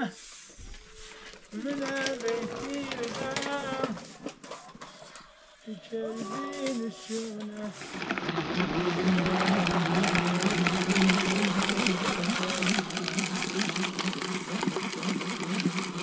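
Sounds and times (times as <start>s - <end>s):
hand-cranked chopper whirring: 1.5s - 4.8s, 7.7s - 16.0s.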